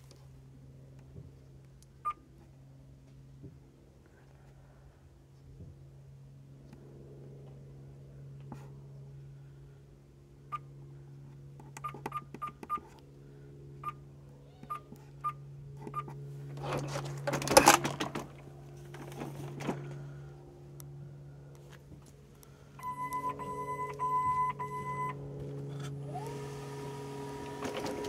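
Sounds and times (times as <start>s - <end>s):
steady low hum: 0.0s - 28.0s
short electronic keypad beeps: 22.8s - 25.2s.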